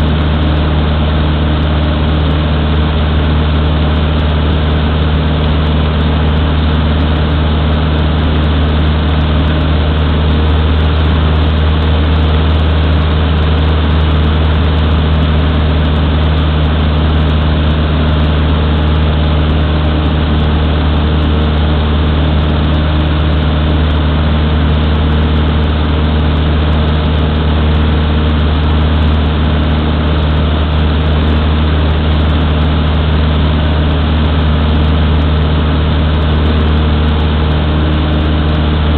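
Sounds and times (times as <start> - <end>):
propeller plane engine droning: 0.0 - 38.9.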